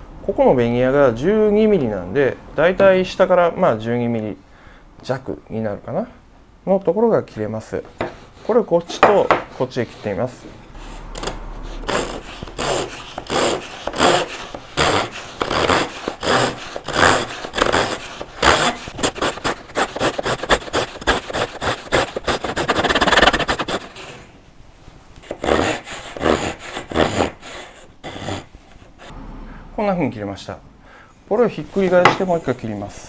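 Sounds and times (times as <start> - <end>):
hand saw cutting wood: 8.0 - 24.2, 25.2 - 29.1.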